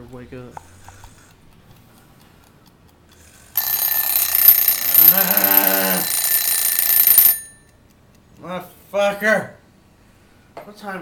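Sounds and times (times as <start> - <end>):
alarm clock ringing: 3.6 - 7.7.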